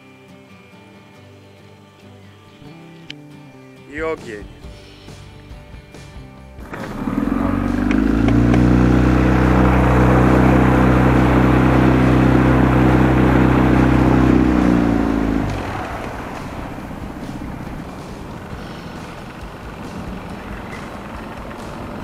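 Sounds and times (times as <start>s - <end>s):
outboard motor running: 5.9s - 22.0s.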